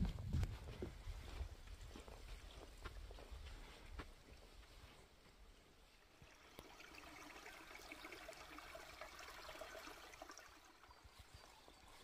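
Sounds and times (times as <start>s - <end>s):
trickle of running water: 6.1s - 12.0s.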